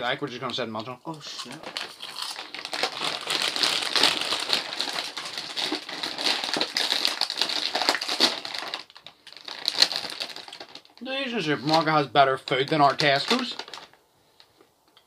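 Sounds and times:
crisps being chewed: 0:01.1 - 0:11.0
plastic packets crinkling: 0:01.2 - 0:14.0.

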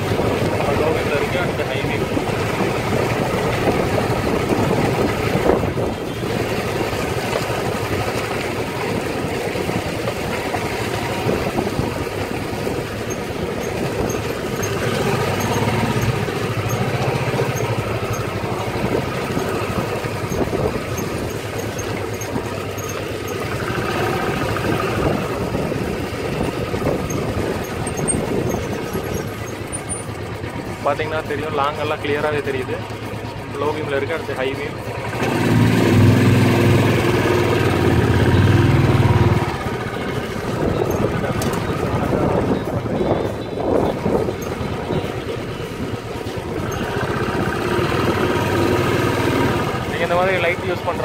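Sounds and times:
motorcycle engine running: 0:00.0 - 0:51.0.

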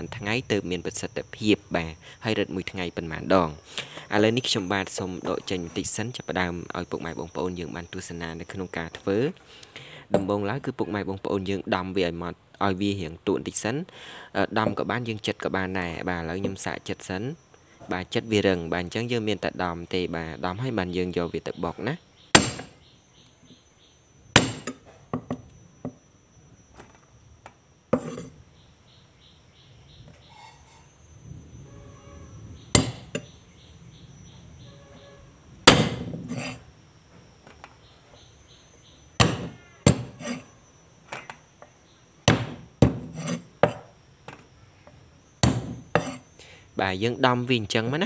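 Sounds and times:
cleaver chopping on wooden board: 0:22.4 - 0:22.8, 0:24.4 - 0:25.4, 0:32.8 - 0:33.2, 0:35.7 - 0:36.2, 0:39.2 - 0:40.4, 0:42.2 - 0:43.9, 0:45.4 - 0:46.2.

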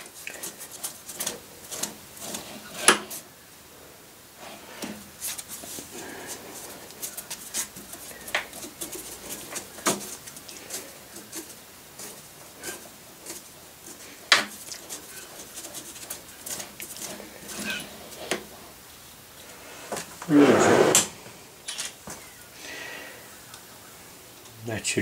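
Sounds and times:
faint squeaks: 0:14.7 - 0:18.2.

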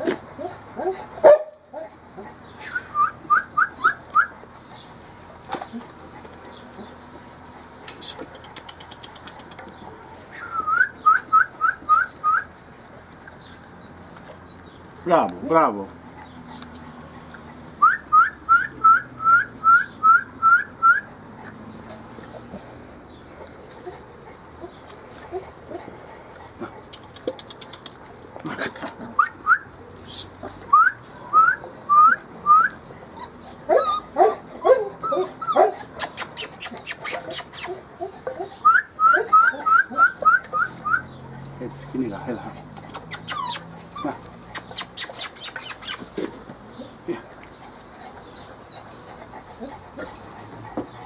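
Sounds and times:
puppies whining: 0:00.0 - 0:14.9, 0:16.0 - 0:51.0
puppies yapping: 0:00.0 - 0:15.0, 0:15.9 - 0:51.0
quick run of clicks: 0:07.9 - 0:09.8, 0:26.4 - 0:28.1, 0:44.4 - 0:46.4.

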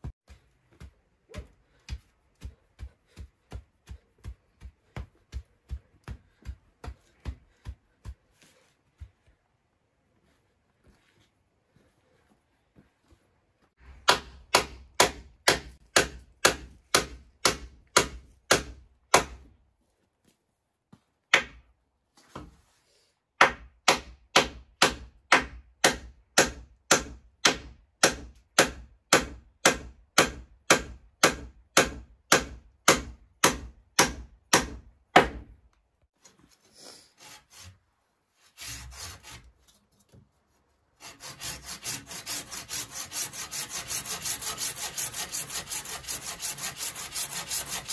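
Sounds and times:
hand saw cutting wood: 0:36.9 - 0:37.8, 0:38.4 - 0:40.2, 0:41.0 - 0:47.9.

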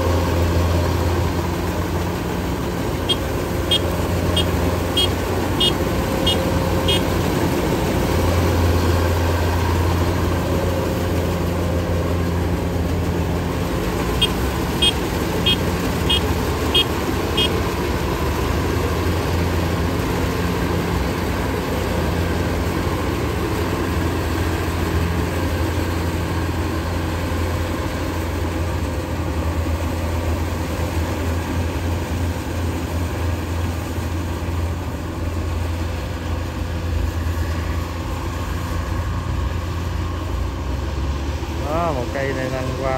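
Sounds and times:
combine harvester droning: 0:00.0 - 0:42.9
short high beeps: 0:03.1 - 0:07.0.

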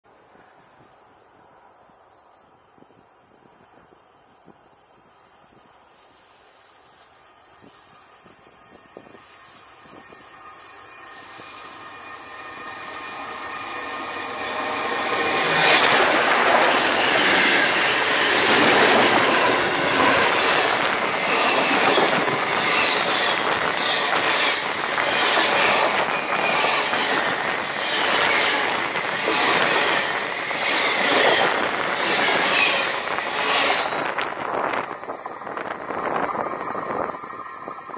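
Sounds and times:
train wheels rumbling on rails: 0:06.9 - 0:37.9.

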